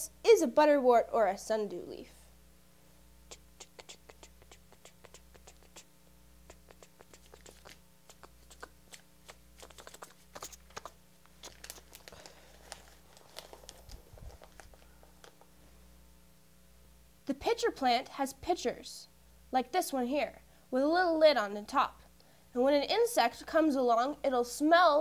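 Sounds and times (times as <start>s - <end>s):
low steady hum: 0.0s - 25.0s
paper rustling: 9.6s - 15.5s
paper rolled up rustling: 10.6s - 15.5s.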